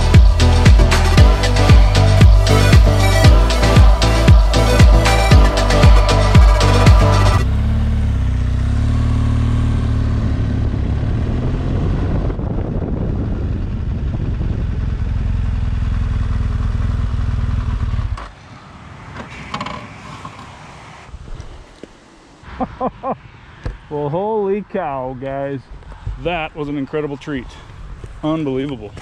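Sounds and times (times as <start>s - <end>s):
music with a beat: 0.0s - 7.4s
motorcycle engine running: 0.0s - 18.3s.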